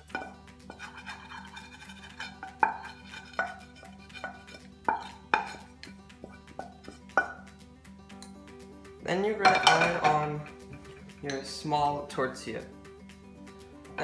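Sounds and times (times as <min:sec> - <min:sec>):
faint background music: 0:00.0 - 0:14.0
utensil clanking on frying pan: 0:00.1 - 0:07.4, 0:09.4 - 0:11.4.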